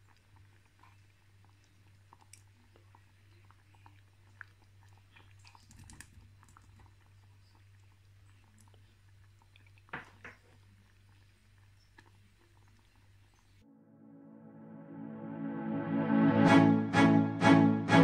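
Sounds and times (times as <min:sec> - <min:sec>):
thick stew simmering with pops: 0:00.0 - 0:13.6
low hum: 0:13.6 - 0:18.0.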